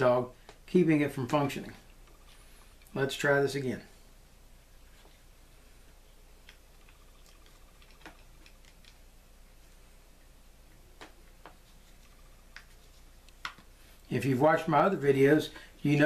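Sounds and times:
faint clicks and taps of reel parts: 0:00.4 - 0:00.7, 0:10.7 - 0:13.8.

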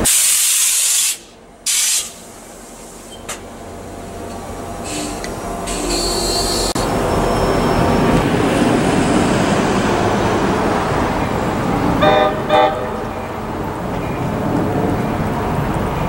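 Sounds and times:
train rushing noise: 0:00.0 - 0:16.0
locomotive air horn blasts: 0:12.0 - 0:13.0.

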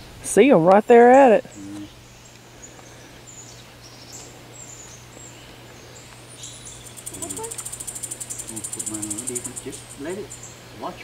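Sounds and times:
small birds chirping: 0:00.9 - 0:11.0
steady low hum: 0:01.4 - 0:10.9
pulsing high insect buzz: 0:05.8 - 0:11.0.

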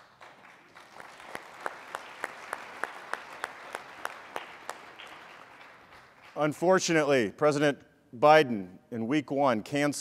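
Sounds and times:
audience applauding: 0:00.0 - 0:06.5
close hands clapping: 0:00.0 - 0:06.6.

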